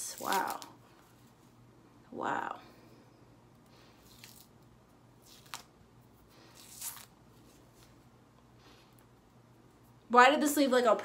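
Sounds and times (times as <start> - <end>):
face mask peeling off skin: 5.2 - 5.8, 6.5 - 7.6.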